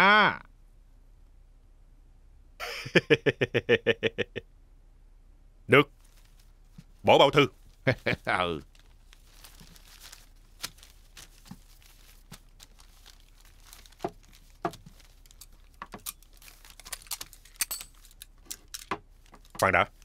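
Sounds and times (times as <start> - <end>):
paper crinkling and rustling: 5.9 - 20.0.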